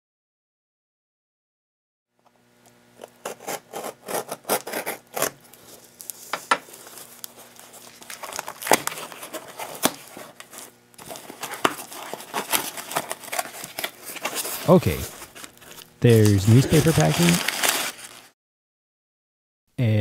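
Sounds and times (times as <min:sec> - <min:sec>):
knife scraping packing tape: 0:03.0 - 0:18.3.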